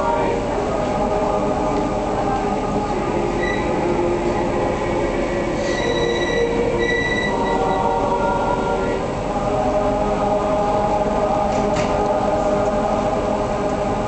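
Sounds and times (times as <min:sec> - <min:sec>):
choir singing over loudspeakers: 0:00.0 - 0:14.0.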